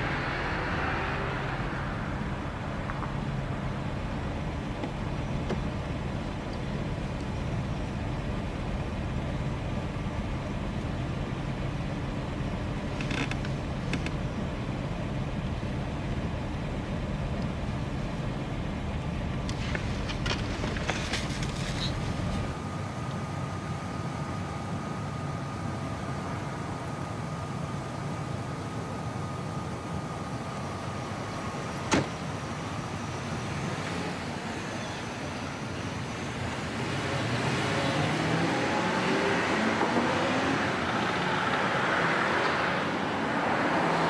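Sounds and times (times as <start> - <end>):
car cabin rumble: 1.6 - 22.6.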